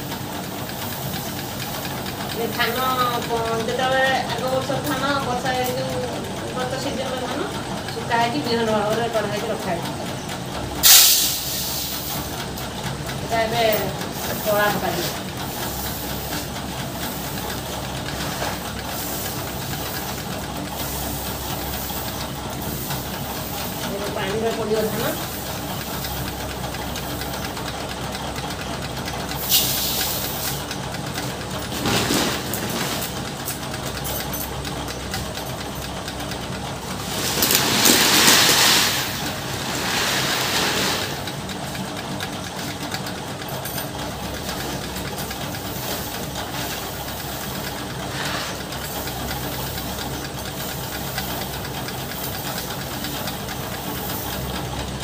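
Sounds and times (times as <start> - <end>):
steady machine hum: 0.0 - 55.0
rice grain rustling and pouring: 36.9 - 41.3.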